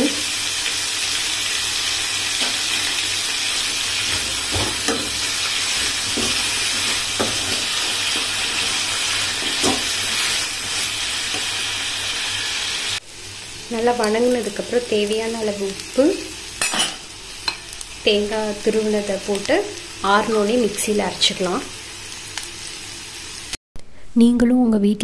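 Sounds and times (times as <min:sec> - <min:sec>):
vegetables sizzling in oil: 0:00.0 - 0:23.6
spatula scraping and tapping pan: 0:04.0 - 0:08.7, 0:09.4 - 0:10.3.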